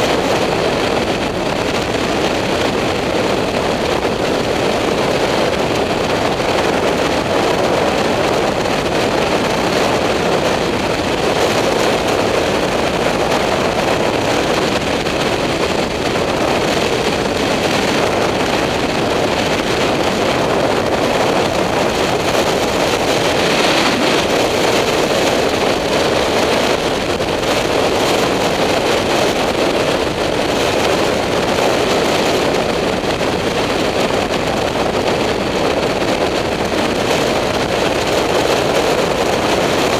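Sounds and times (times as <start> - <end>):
wind rushing over helmet: 20.0 - 27.3
motorcycle engine cruising: 21.4 - 26.0.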